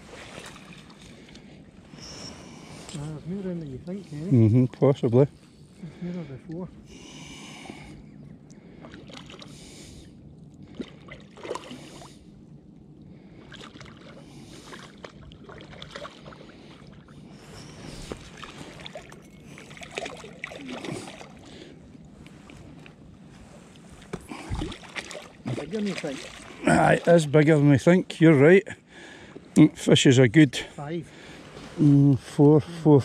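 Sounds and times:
water sloshing: 0.0s - 8.0s, 8.6s - 12.1s, 13.1s - 27.8s
fish splashing in water: 10.7s - 12.0s, 13.4s - 16.9s, 18.1s - 21.5s, 24.2s - 26.7s.

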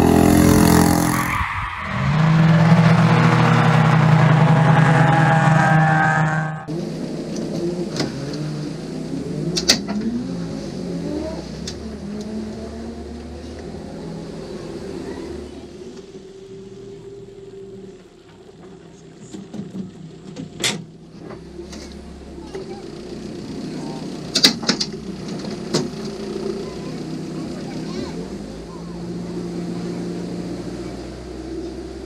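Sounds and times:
kart engine at high revs: 0.0s - 17.9s, 21.1s - 32.0s
race car engine idling: 14.5s - 29.0s.

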